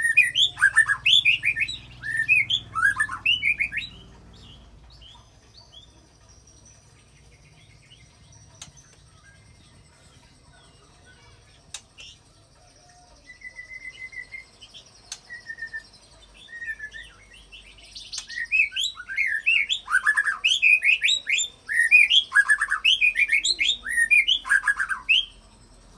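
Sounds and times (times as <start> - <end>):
bird singing whistles and chirps: 0.0 - 5.1, 12.9 - 25.4.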